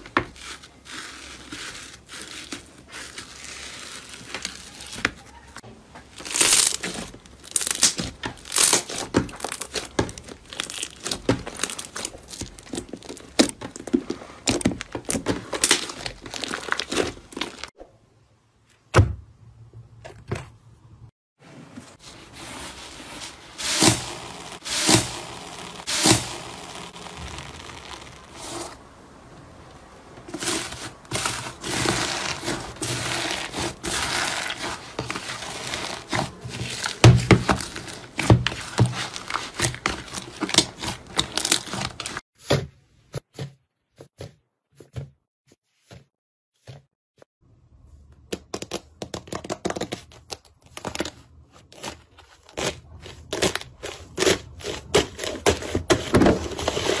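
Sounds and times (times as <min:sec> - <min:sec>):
slime squishing: 0:00.0 - 0:17.7, 0:22.6 - 0:29.0, 0:30.2 - 0:42.2
slime crackling and popping: 0:06.2 - 0:17.7, 0:23.6 - 0:28.5.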